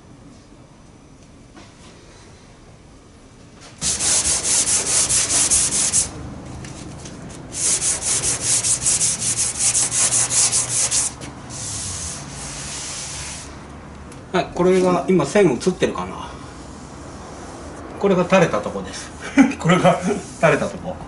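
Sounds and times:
hand sanding strokes: 3.8 - 6.2, 7.4 - 13.6, 16.5 - 17.9, 18.6 - 20.8.

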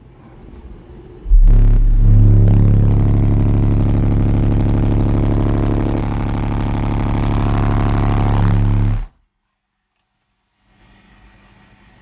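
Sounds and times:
subwoofer test tone drone: 1.2 - 9.2.

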